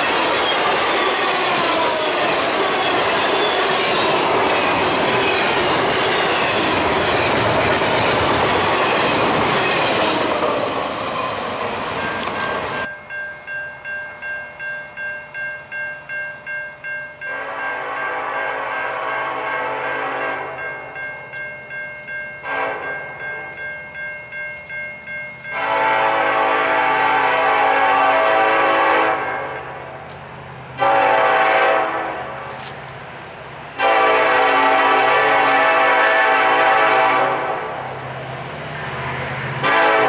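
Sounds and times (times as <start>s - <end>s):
crossing bell ringing: 0.0s - 30.2s
train air horn blasts: 17.3s - 20.7s, 22.4s - 23.0s, 25.5s - 30.0s, 30.8s - 32.7s, 33.8s - 37.9s, 39.6s - 40.0s.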